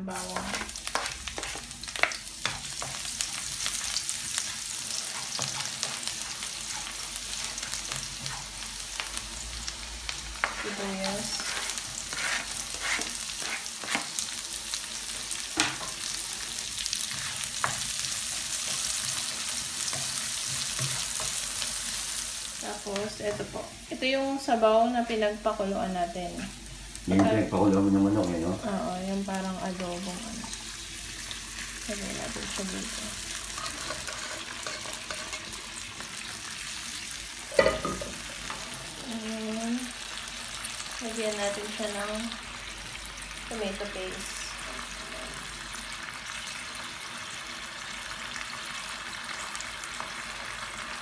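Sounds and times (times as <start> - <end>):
food sizzling in oil: 0.0 - 51.0
spatula scraping and tapping pan: 0.3 - 8.6, 10.4 - 14.2, 33.5 - 35.6.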